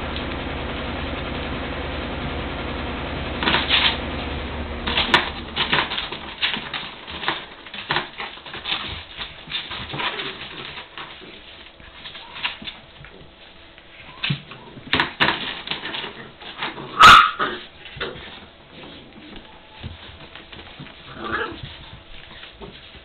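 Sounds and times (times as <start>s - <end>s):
puppies play-fighting: 4.8s - 23.0s.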